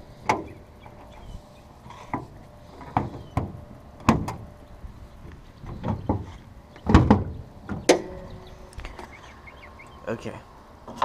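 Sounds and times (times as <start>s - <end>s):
hood latches clicking: 1.9s - 4.5s.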